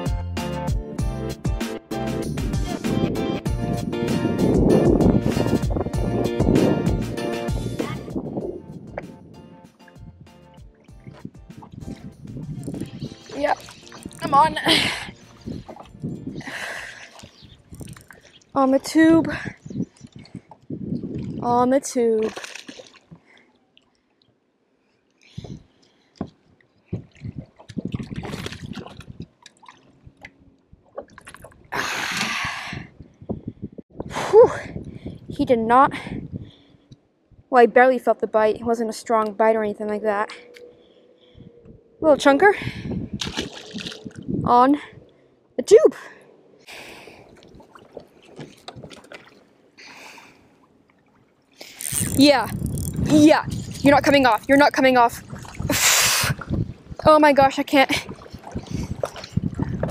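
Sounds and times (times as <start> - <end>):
fish splashing at surface: 43.2 - 44.2
fishing reel clicks: 51.7 - 53.1.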